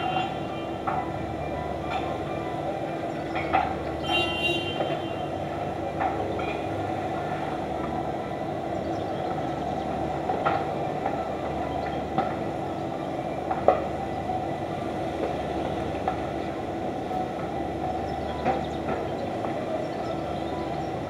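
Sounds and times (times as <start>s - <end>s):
city background rumble: 0.0s - 21.0s.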